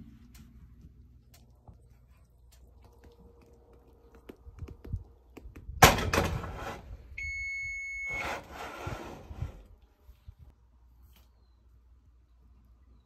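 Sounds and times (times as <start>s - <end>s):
loud thunk with clatter: 5.8s - 6.6s
appliance electronic beep: 7.2s - 8.4s.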